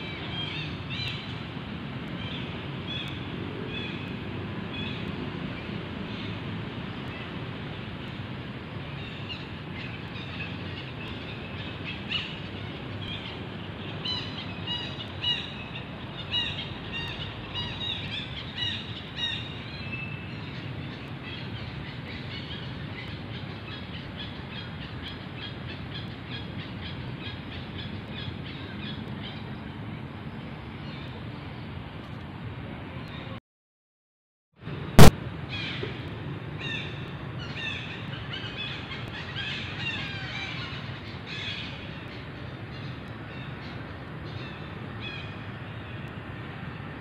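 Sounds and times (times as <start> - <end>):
outdoor background noise: 0.0 - 33.4, 34.6 - 47.0.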